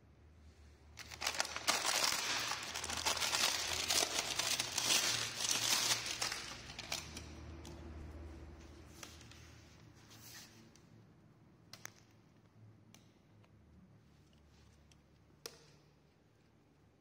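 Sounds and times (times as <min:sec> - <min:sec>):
plastic bag crinkling: 0:01.0 - 0:07.8.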